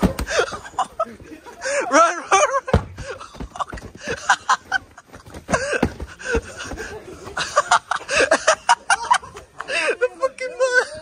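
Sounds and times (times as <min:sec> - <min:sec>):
young men laughing: 0:00.2 - 0:11.0.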